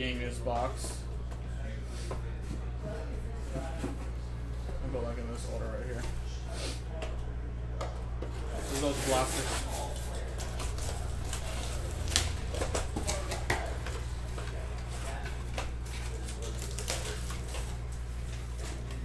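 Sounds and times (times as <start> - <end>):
wrappers and cardboard rustling: 8.3 - 19.0.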